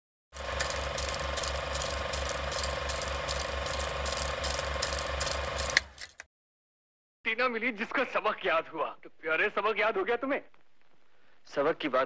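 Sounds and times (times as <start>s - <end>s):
mechanical ratcheting clatter: 0.4s - 6.2s.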